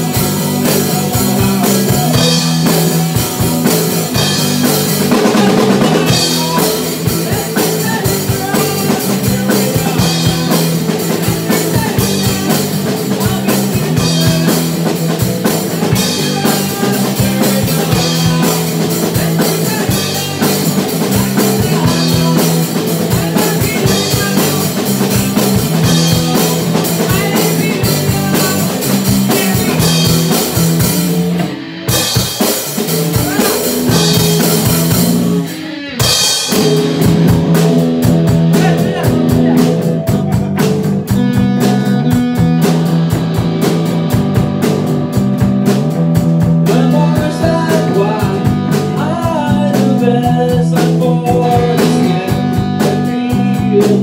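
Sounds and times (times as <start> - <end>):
drum kit beat: 0.0 - 54.0
electric guitars: 0.0 - 54.0.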